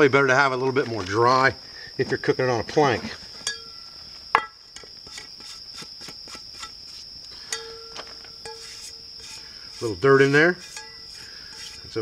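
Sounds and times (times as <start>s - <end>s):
cricket trill: 0.0s - 12.0s
cast-iron skillet ringing: 3.4s - 4.6s, 7.4s - 9.8s, 10.5s - 11.8s.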